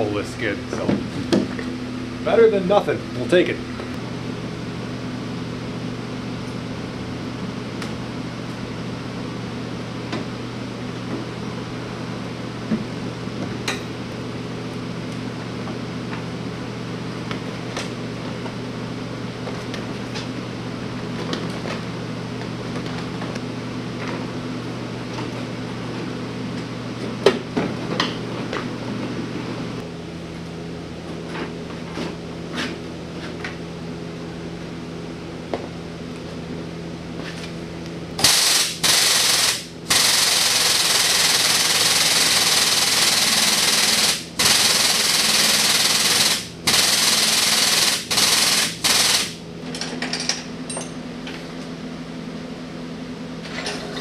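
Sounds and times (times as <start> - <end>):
electrical hum of shop machinery: 0.0 - 54.0
compressed-air tool bursts: 38.2 - 49.4.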